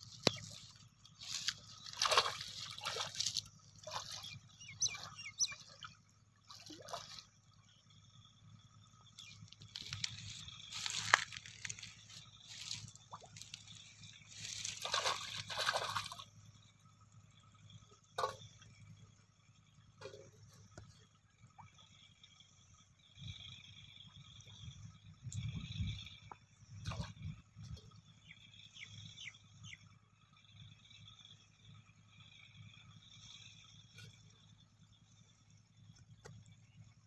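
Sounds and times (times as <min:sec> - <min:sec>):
water splashing from wading: 0:00.0 - 0:07.6, 0:09.4 - 0:16.4, 0:26.2 - 0:27.4.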